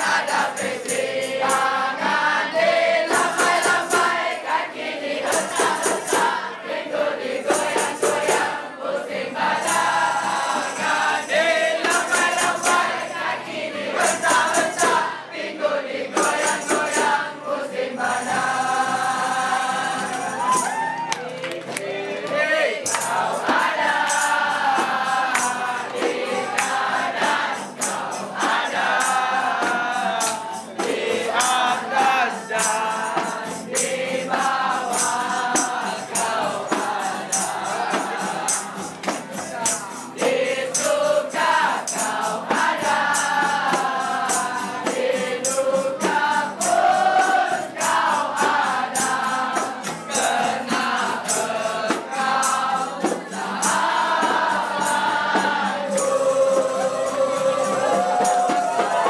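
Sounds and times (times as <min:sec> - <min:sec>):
crowd singing loudly: 0:00.0 - 0:59.0
handclaps: 0:11.8 - 0:13.0, 0:20.1 - 0:28.6, 0:37.9 - 0:41.0.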